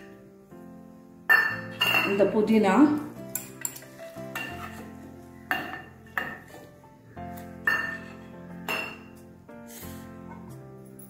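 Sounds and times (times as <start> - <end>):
soft background music: 0.0 - 11.0
steel jar and bowls clinking: 1.3 - 2.2, 3.3 - 4.9, 7.6 - 9.1.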